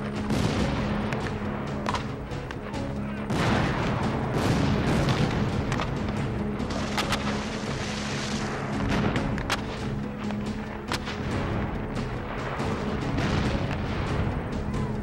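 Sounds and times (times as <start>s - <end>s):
cannon booming: 0.0s - 9.9s, 10.9s - 14.9s
background music with held notes: 0.0s - 15.0s
sharp gunshots: 0.2s - 2.2s, 3.3s - 9.8s.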